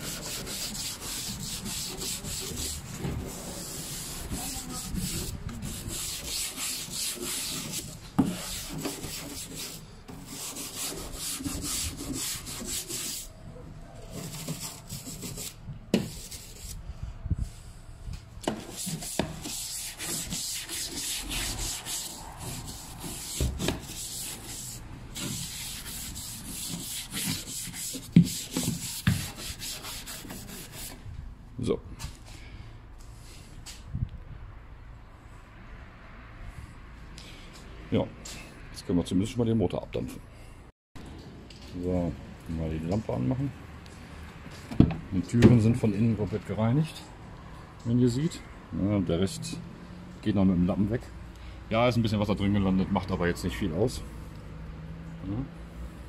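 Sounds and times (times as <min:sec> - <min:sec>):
brush scrubbing car bodywork: 0:00.0 - 0:13.4, 0:14.1 - 0:16.8, 0:18.5 - 0:31.0.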